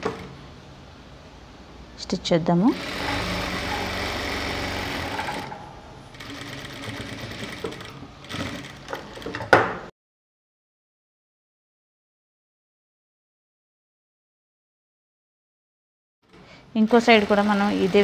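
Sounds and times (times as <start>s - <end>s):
sewing machine running: 0.0s - 0.3s, 2.7s - 9.6s, 16.3s - 18.0s.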